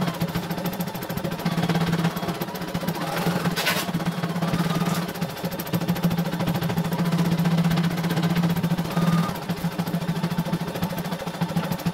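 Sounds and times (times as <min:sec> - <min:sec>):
embroidery machine stitching: 0:00.0 - 0:06.2, 0:06.9 - 0:09.9.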